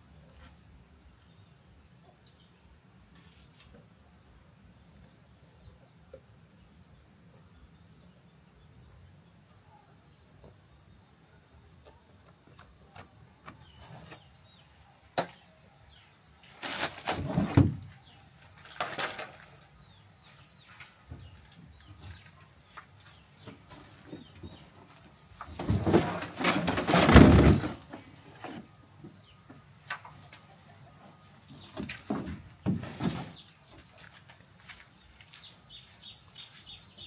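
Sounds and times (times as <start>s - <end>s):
plastic hull scraping and rattling: 25.5s - 28.6s.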